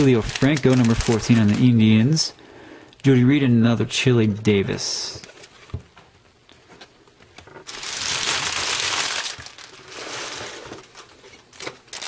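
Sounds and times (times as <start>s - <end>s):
foil wrapper crinkling: 0.0s - 2.2s, 7.6s - 12.0s.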